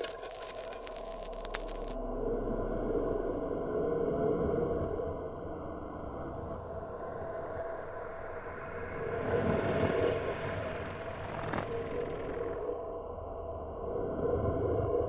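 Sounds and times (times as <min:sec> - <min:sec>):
low electronic hum: 0:00.0 - 0:07.1.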